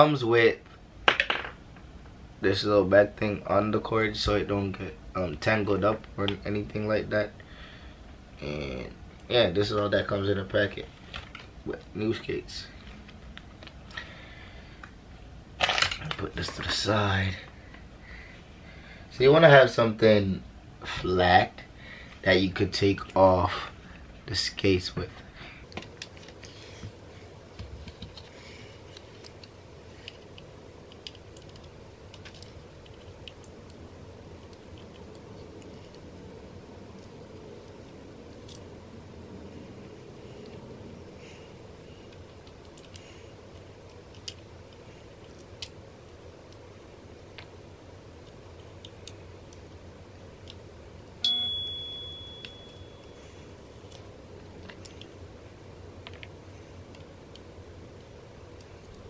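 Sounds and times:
high-pitched ding: 51.2s - 53.2s.

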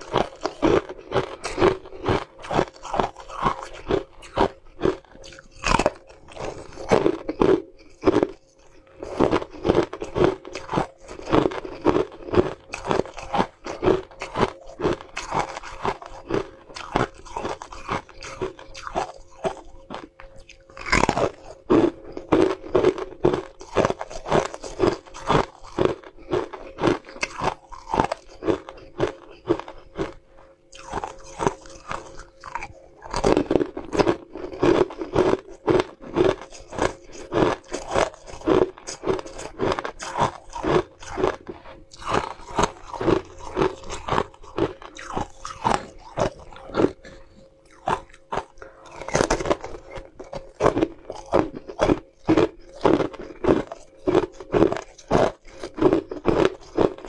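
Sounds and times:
ice being bitten and chewed: 0.0s - 57.0s.

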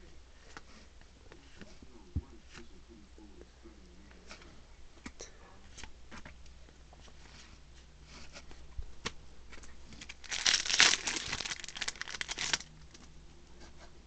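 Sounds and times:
cards rustling and clicking: 8.2s - 13.1s
foil wrapper crinkling: 10.0s - 13.0s.

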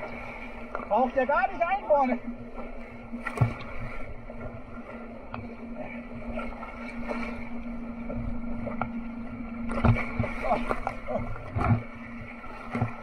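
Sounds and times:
low hum: 0.0s - 13.0s.

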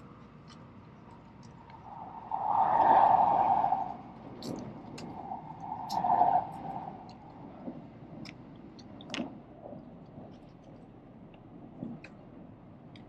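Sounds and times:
light ticks: 0.2s - 1.9s.

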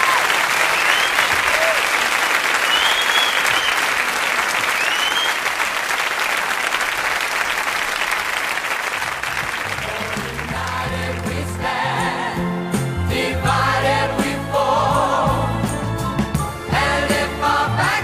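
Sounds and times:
audience applauding: 0.0s - 11.5s
music: 9.1s - 18.0s.

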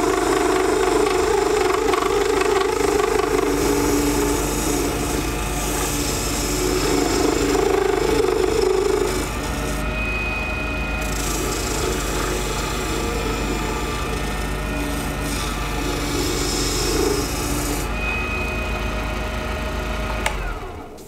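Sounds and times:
gouge cutting spinning resin: 0.0s - 20.8s
lathe running: 0.0s - 21.0s.

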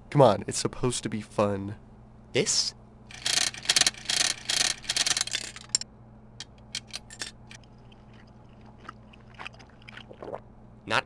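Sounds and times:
gumball machine rattling: 3.1s - 5.8s.

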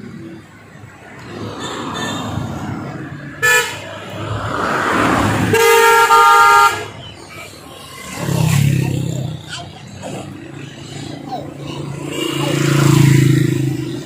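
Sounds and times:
road traffic: 0.0s - 14.0s
car horn: 1.3s - 2.5s, 3.4s - 4.2s, 5.4s - 7.0s
vehicle rushing past: 3.9s - 6.2s, 11.9s - 14.0s.

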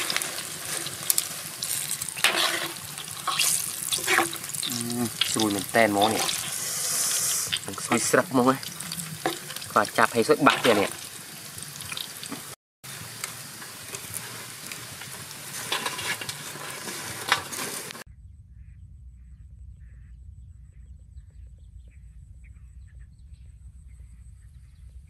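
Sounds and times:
hot oil sizzling: 0.0s - 18.1s.

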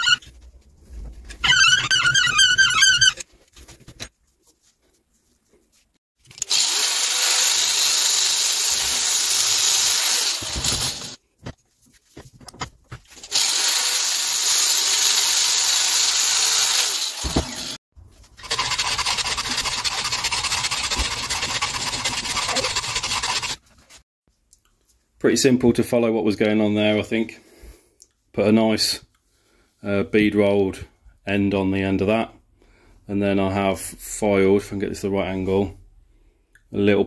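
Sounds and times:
angle grinder cutting steel: 6.4s - 11.2s, 13.2s - 17.8s, 18.4s - 23.6s.

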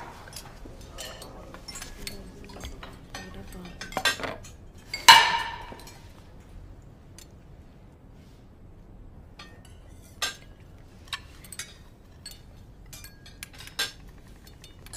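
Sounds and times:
cutlery clinking on plates: 0.0s - 6.2s, 9.4s - 14.9s.

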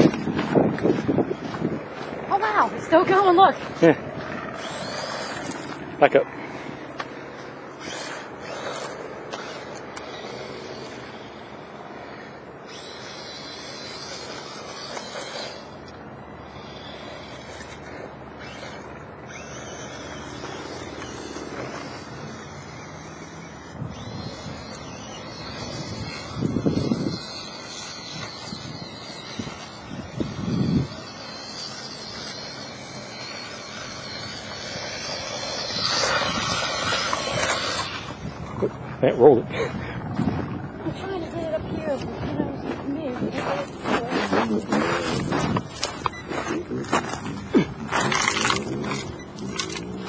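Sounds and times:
toy truck motor whirring: 0.0s - 39.0s, 39.6s - 50.0s
sand hiss: 24.0s - 38.2s.

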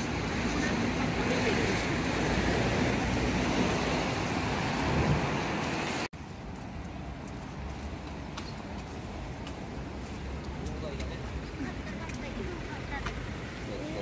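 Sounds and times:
passing traffic: 0.0s - 14.0s.

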